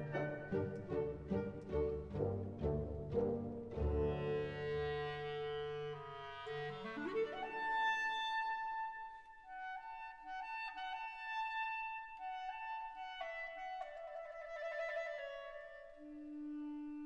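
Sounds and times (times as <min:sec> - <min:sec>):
instrumental background music: 0:00.0 - 0:06.6.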